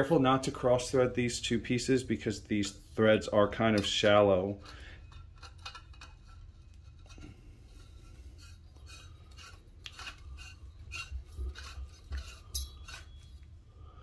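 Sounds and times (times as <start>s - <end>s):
metal threads scraping: 4.5s - 13.5s.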